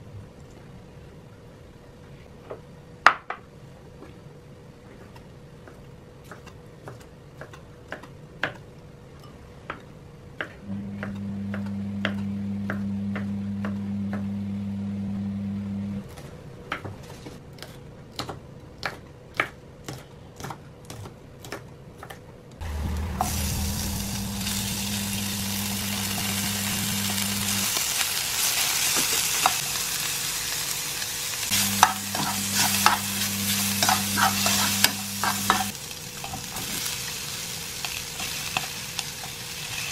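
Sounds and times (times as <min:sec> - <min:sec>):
low steady hum: 0:10.6 - 0:16.1, 0:22.6 - 0:27.8
food sizzling in frying pan: 0:22.6 - 0:39.9
spoon scraping and clinking in pan: 0:33.8 - 0:36.4.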